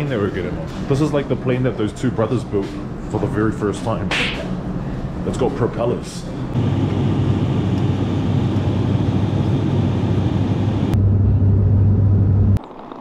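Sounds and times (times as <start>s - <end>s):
propeller airliner cabin drone: 3.8s - 12.6s.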